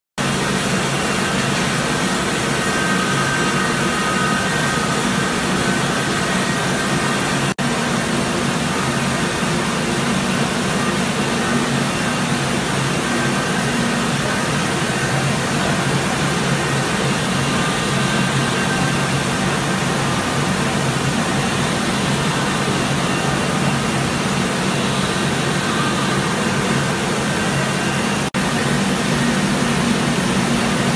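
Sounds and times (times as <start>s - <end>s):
milling machines humming: 0.2s - 30.9s.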